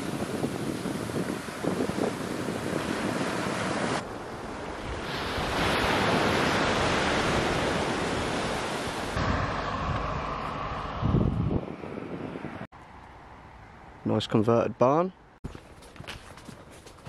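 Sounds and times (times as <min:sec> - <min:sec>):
surf washing onto beach: 0:00.0 - 0:09.5
wind on microphone: 0:00.0 - 0:12.7.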